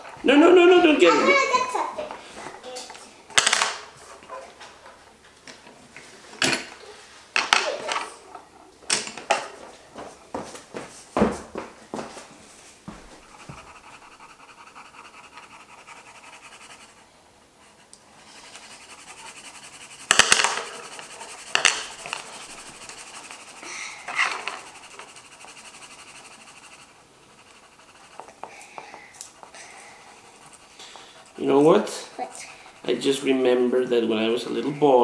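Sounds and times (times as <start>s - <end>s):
pencil scratching on paper: 12.9s - 35.0s.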